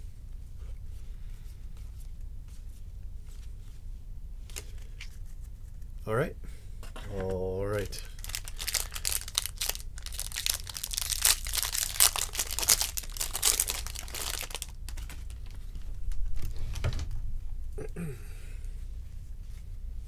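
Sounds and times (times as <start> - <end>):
cards being handled: 7.0 - 15.9
foil wrapper tearing and crinkling: 8.1 - 15.6.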